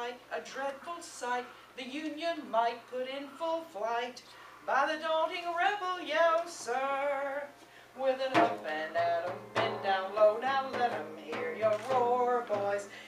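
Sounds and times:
woman singing: 0.0 - 13.0
frame drum beats: 8.3 - 12.9.

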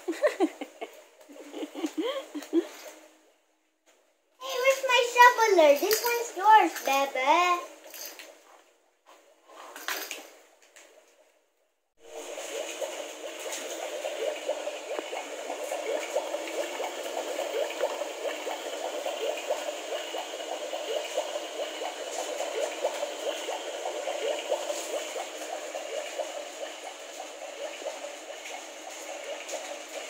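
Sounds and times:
toy bubbling gurgling sound: 4.4 - 8.4, 12.0 - 30.0.

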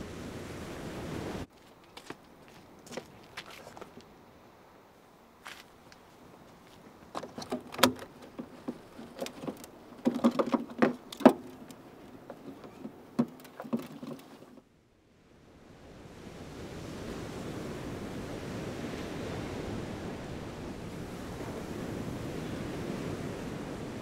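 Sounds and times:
surf on a beach: 0.0 - 1.5, 3.6 - 24.0
objects clattering while rummaging: 7.1 - 14.6.

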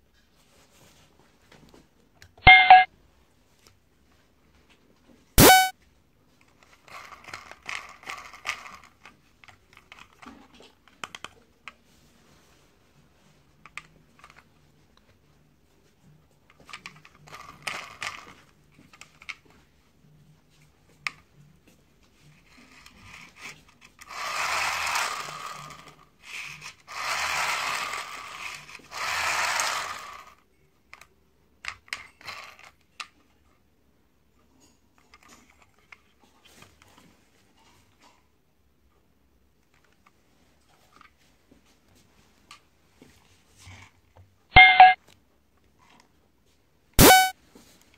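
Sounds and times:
plastic scraping and rattling: 6.5 - 11.3
plastic toy clicks and rattles: 6.6 - 11.3, 16.6 - 19.4, 22.7 - 33.1.

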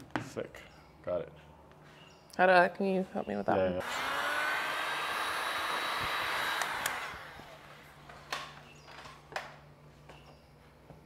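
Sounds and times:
heat gun blowing: 3.8 - 7.9.

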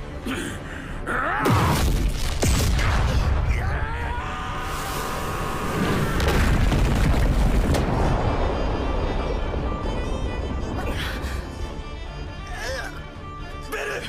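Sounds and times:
crash of bursting rubble: 5.8 - 11.7
deep booming rumble: 5.9 - 12.5.

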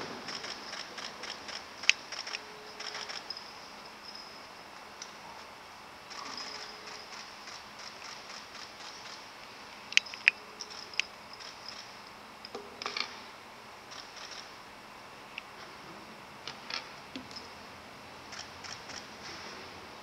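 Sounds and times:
faint room hiss: 0.0 - 20.0
sharp clicks: 0.2 - 3.4.

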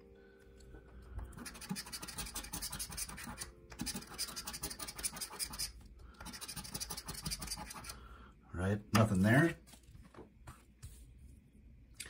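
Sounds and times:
coin scraping lottery ticket: 1.4 - 7.9.

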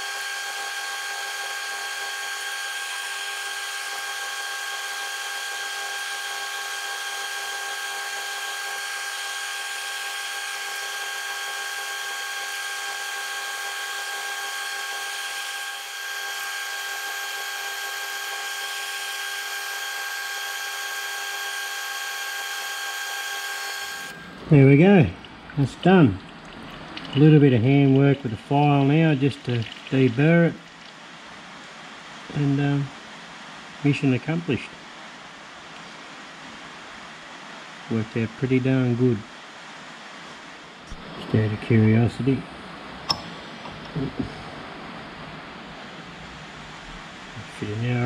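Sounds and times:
milling machine whining: 0.0 - 27.6.

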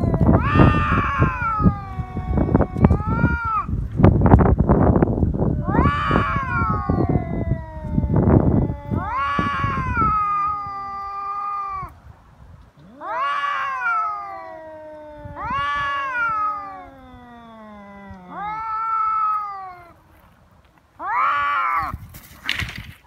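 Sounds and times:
cat growling: 0.0 - 3.8, 5.5 - 12.0, 12.7 - 20.0
cats yowling: 0.0 - 3.8, 5.4 - 12.0, 12.7 - 20.0, 21.0 - 22.0.

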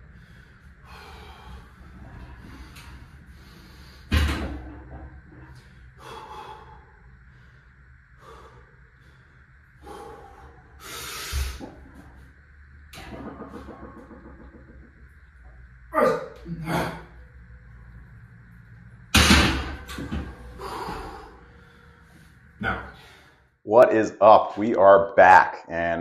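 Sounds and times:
man heavy rasping breathing: 0.0 - 4.1, 5.6 - 11.7, 20.4 - 23.5.

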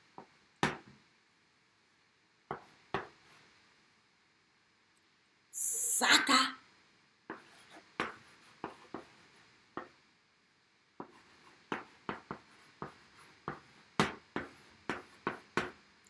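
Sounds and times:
chalk writing on chalkboard: 2.5 - 3.5, 7.3 - 10.0, 11.0 - 15.8.

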